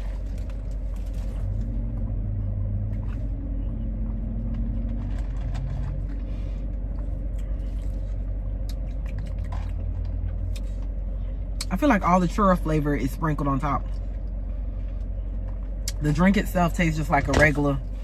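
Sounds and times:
car engine idling: 0.0s - 18.0s.

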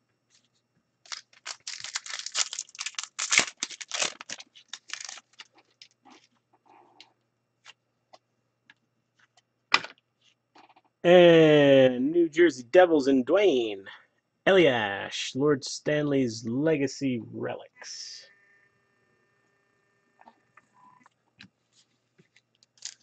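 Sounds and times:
foil wrapper crinkling and tearing: 1.1s - 6.3s, 22.6s - 23.0s.

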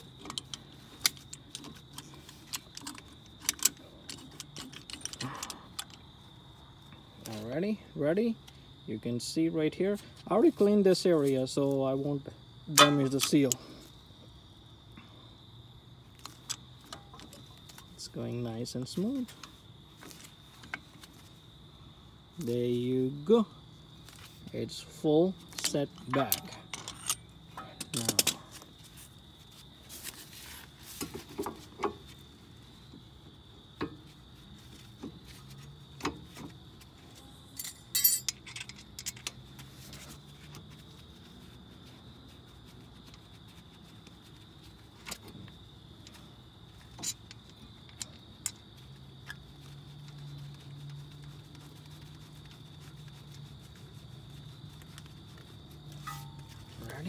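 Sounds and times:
metal tools clinking and rattling: 0.0s - 6.0s, 12.7s - 13.7s, 25.5s - 28.6s, 37.5s - 39.5s, 46.8s - 48.6s, 55.9s - 57.0s.

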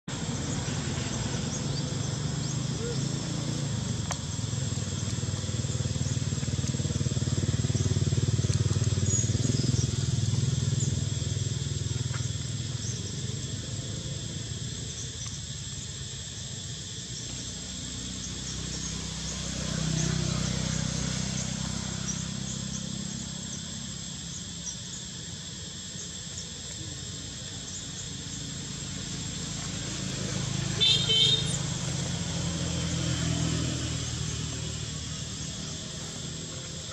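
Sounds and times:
distant road traffic rumble: 0.1s - 36.9s.

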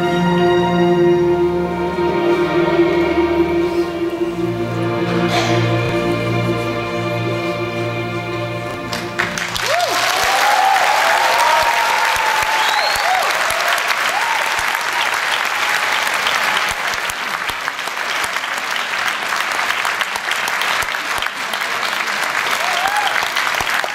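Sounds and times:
orchestra holding chord: 0.0s - 9.6s
audience applause: 8.8s - 23.9s
shouts and whoops: 9.6s - 16.8s, 22.5s - 23.4s.

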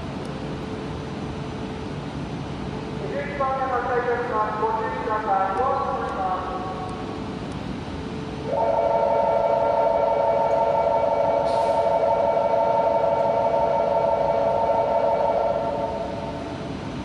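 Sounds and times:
electronic warning tone chord: 8.6s - 16.6s.

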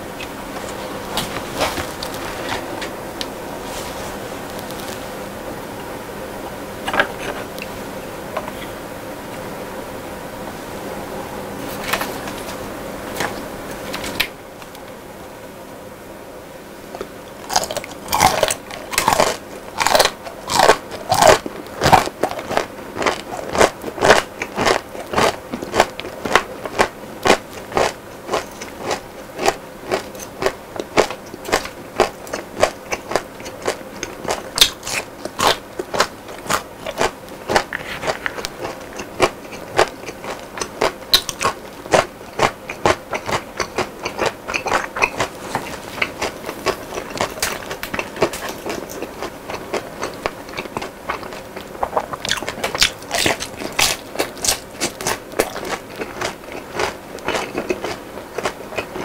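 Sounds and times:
chewing crunchy fried food: 0.2s - 2.7s, 16.9s - 59.0s.

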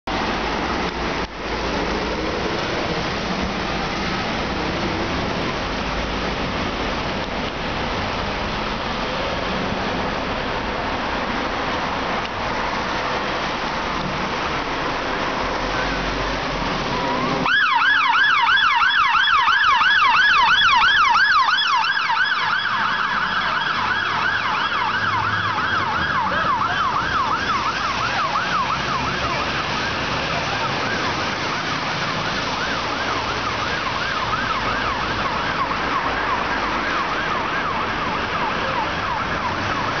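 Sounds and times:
road noise: 0.0s - 40.0s
fire engine siren yelping: 12.7s - 40.0s.

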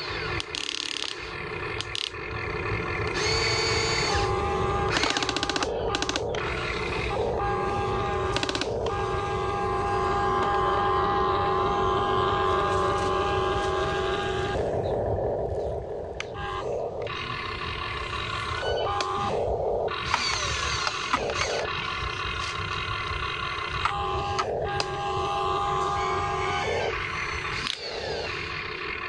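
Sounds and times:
sharp clicks: 0.0s - 10.6s, 16.2s - 25.0s, 27.0s - 28.6s
electric motors whining: 0.0s - 29.0s.

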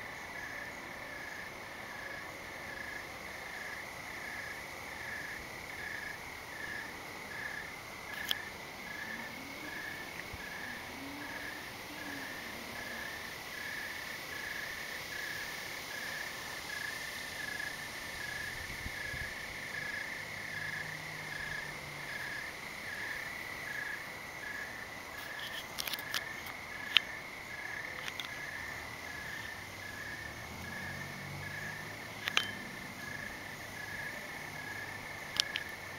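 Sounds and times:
crickets trilling: 0.0s - 35.9s
insect chirping in an even beat: 0.0s - 35.9s
sharp clicks: 32.2s - 32.6s, 35.3s - 35.8s.

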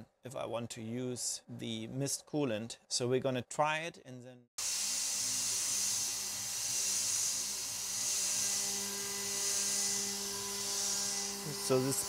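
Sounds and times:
metal cutting noise: 4.6s - 12.0s
router spindle humming: 4.6s - 12.0s.

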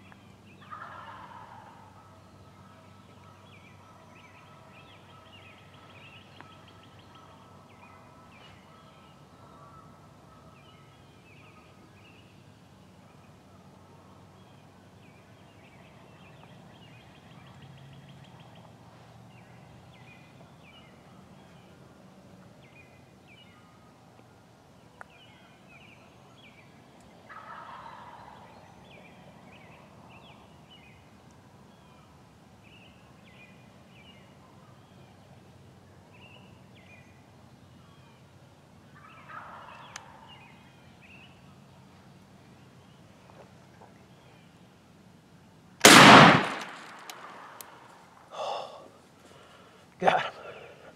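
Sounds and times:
distant turkey gobbling: 0.6s - 10.6s, 27.2s - 28.5s, 39.0s - 40.5s.

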